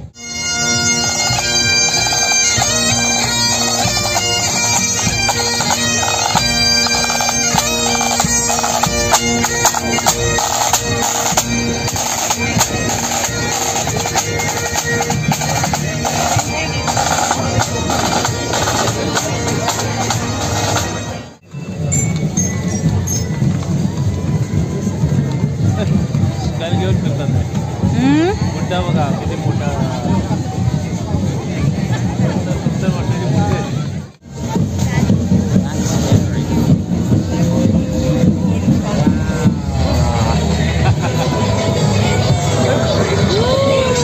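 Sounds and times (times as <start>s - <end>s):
bagpipes playing melody: 0.0s - 21.4s, 37.0s - 44.0s
drums beating: 0.0s - 44.0s.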